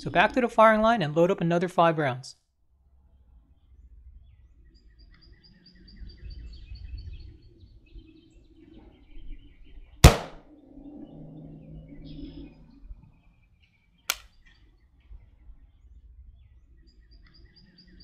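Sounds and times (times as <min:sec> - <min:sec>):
rifle shot: 0:10.0 - 0:10.4
birds chirping in trills: 0:10.5 - 0:14.6.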